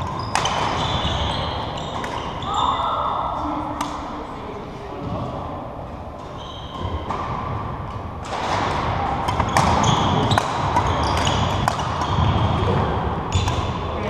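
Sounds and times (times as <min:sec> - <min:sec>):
rackets striking shuttlecock: 0:00.0 - 0:02.4, 0:03.8 - 0:04.1, 0:06.2 - 0:13.8
shoes squeaking on wooden floor: 0:00.0 - 0:02.7, 0:06.3 - 0:07.1, 0:09.4 - 0:12.7
echoing sports hall noise: 0:00.0 - 0:14.0.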